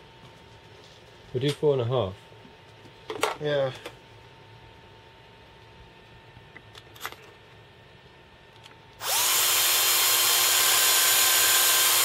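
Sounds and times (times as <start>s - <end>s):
cordless drill whining: 9.0s - 12.0s.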